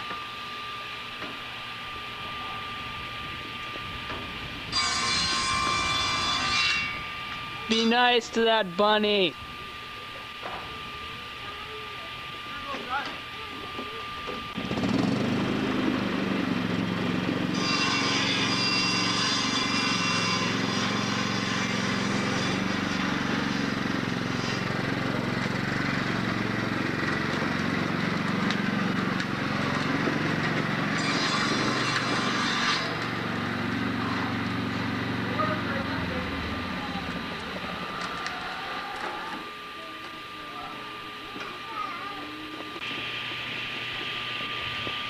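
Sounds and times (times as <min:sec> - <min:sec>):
lawn tractor engine running: 0:14.5 - 0:17.5, 0:23.3 - 0:30.9.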